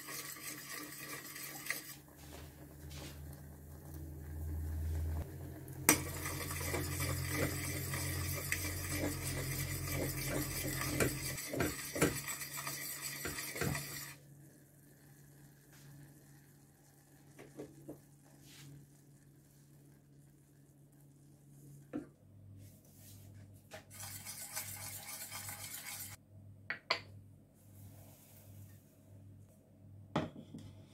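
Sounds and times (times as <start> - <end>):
spoon stirring in metal pot: 0.0 - 2.0, 5.9 - 14.2, 23.9 - 26.2.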